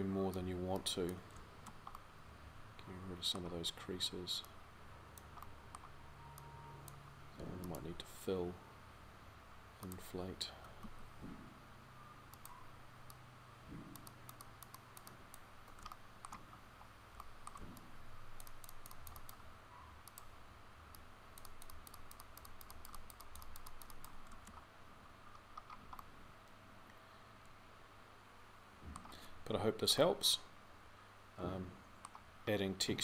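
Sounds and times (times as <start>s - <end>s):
low steady hum: 0.0s - 33.0s
mouse and keyboard clicking: 5.2s - 7.0s, 12.3s - 13.2s, 13.9s - 16.4s, 17.2s - 19.4s, 20.0s - 20.3s, 20.9s - 24.6s.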